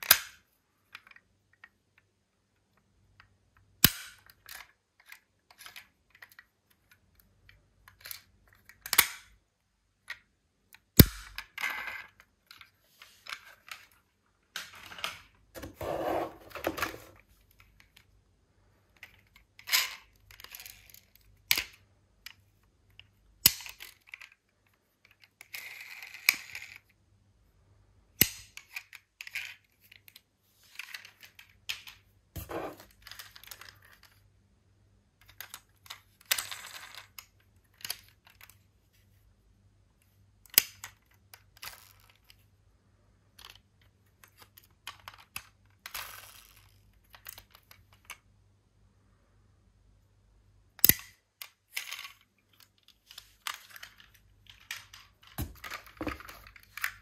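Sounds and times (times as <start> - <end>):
toy cars clacking together: 25.0 - 26.9.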